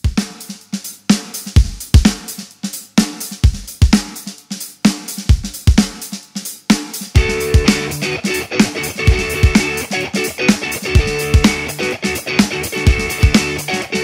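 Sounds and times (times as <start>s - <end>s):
drum kit beat: 0.0s - 14.0s
guitar sustained notes: 7.2s - 14.0s.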